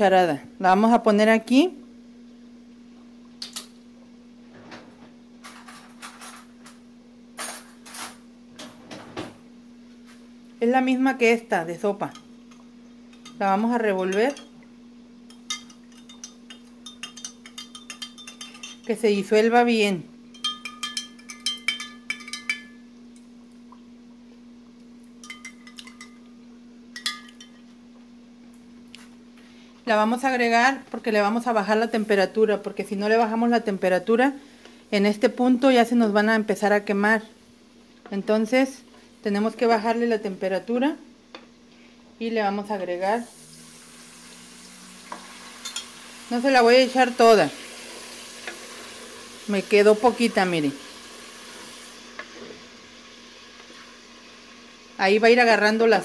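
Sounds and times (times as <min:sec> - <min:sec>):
steady low hum: 0:00.0 - 0:47.6
spoon clinking against glass: 0:15.3 - 0:18.9, 0:20.3 - 0:22.9, 0:25.2 - 0:26.3, 0:27.0 - 0:27.6, 0:45.6 - 0:45.9
kitchen utensils clicking and tapping: 0:15.3 - 0:19.0, 0:20.3 - 0:22.8, 0:25.2 - 0:26.2.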